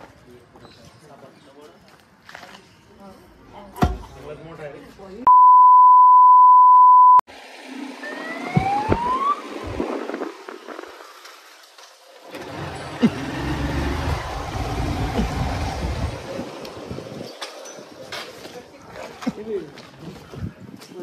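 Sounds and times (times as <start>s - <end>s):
test-tone beep: 5.3s - 7.2s
rising siren-like wail: 8.0s - 9.9s
motor scooter engine: 12.2s - 17.1s
wind on microphone: 14.4s - 17.4s, 20.2s - 20.9s.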